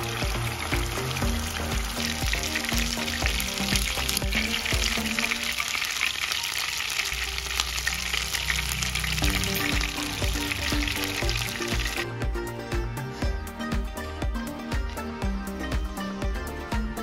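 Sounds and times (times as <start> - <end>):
fish sizzling in hot oil: 0.0 - 12.1.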